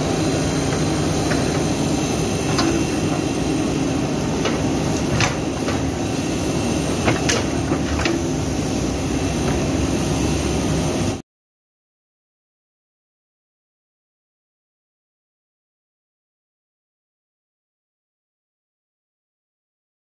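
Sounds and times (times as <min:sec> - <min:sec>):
diesel engine running under load: 0:00.0 - 0:11.2
clicks and knocks from digger bucket: 0:07.0 - 0:08.3.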